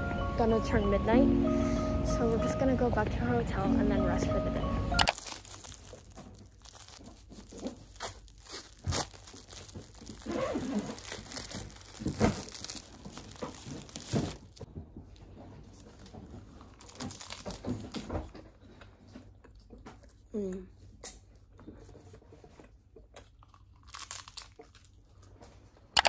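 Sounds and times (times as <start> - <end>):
plastic wrapper crinkling: 5.0 - 14.7, 15.8 - 18.1
crunching bites into seaweed: 23.5 - 25.0.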